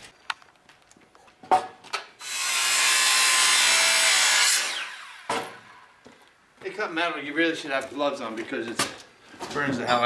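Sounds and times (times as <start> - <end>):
circular saw cutting metal: 2.2 - 5.4
saw blade spinning down: 2.2 - 5.8.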